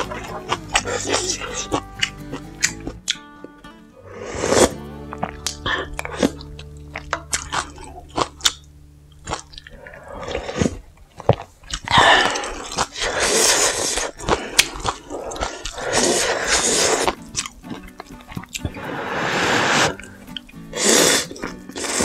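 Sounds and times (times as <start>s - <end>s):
crunchy chewing: 4.5s - 22.0s
wet noisy slurping of noodles: 9.8s - 10.8s, 11.9s - 17.2s, 18.7s - 22.0s.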